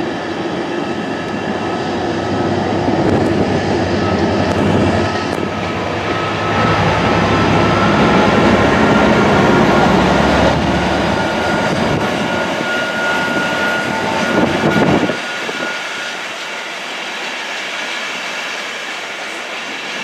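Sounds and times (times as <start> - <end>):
faint whine: 0.0 - 16.9
train wheels rumbling on rails: 0.0 - 20.0.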